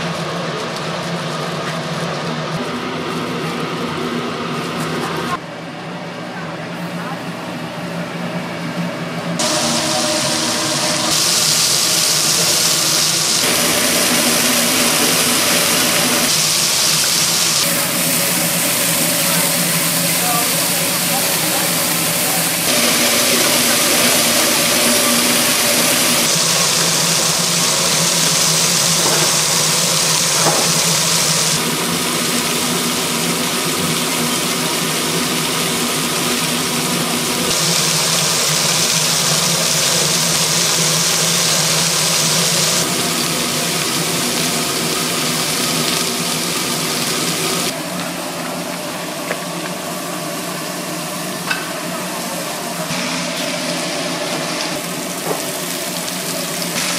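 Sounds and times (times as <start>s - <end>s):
mechanical hum: 0.0s - 56.9s
loud hiss: 9.4s - 47.8s, 52.4s - 56.9s.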